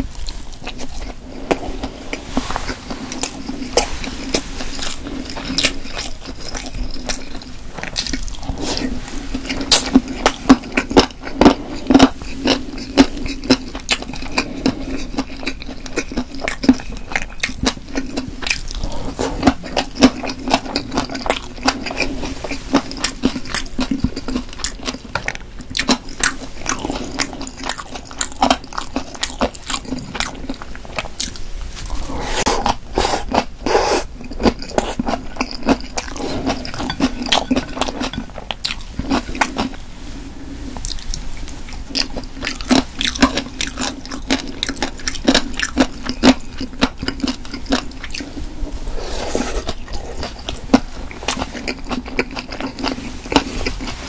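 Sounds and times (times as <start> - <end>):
crunchy chewing: 0.0 - 39.8, 40.8 - 54.0.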